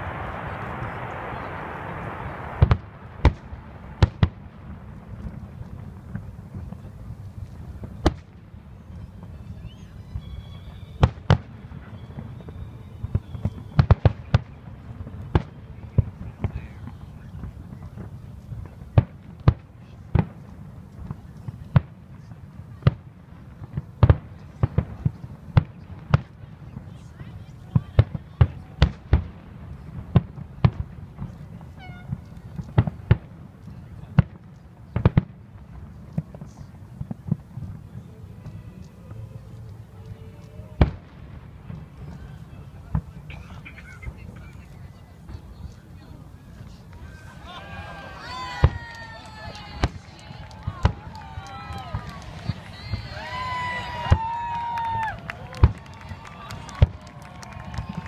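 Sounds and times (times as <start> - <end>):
low rumble: 0.0 - 7.8
fireworks bursting: 0.0 - 58.0.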